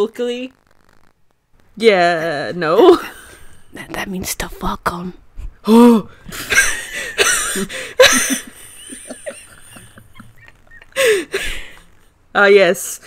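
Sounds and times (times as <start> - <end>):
people laughing with squeals: 6.4 - 11.3.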